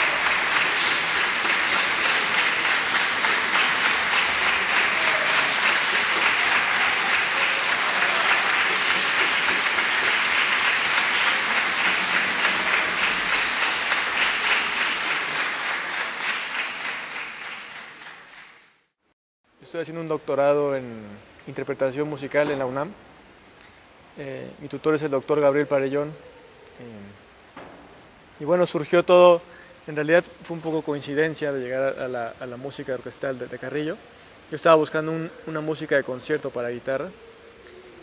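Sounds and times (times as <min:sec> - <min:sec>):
audience applauding: 0:00.0 - 0:18.8.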